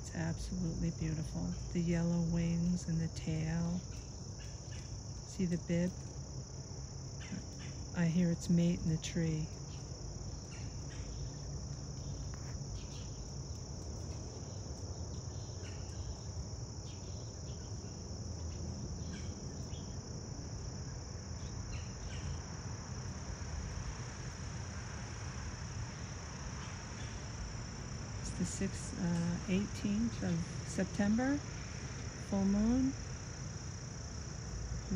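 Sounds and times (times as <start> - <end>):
low background rumble: 0.0 - 21.3
high-pitched insect chorus: 0.0 - 34.9.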